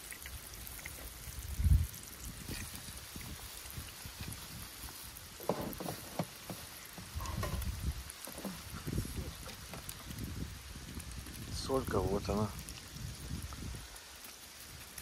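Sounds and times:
eggs sizzling in frying pan: 0.0s - 15.0s
dull low thump: 5.4s - 8.6s.

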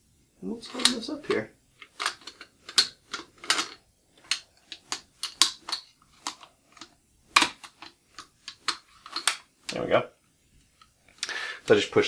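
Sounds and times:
shotgun action metal clicks: 0.7s - 1.0s.

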